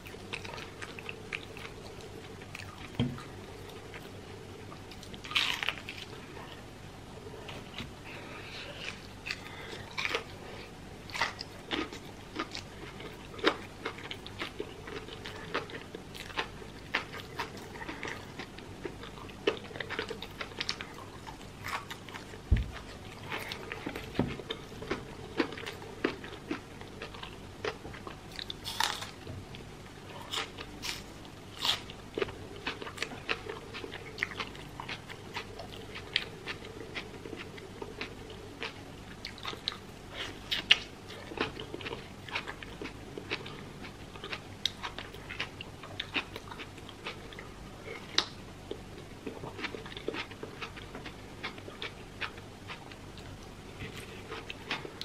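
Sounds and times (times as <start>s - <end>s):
chewing and crunching fried food: 0.0s - 55.0s.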